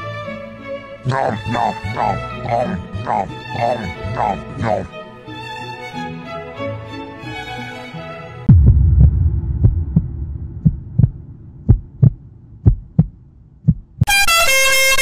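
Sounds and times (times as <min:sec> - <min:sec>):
deep rumble: 0:08.5 - 0:14.0
heartbeat thuds: 0:08.5 - 0:14.1.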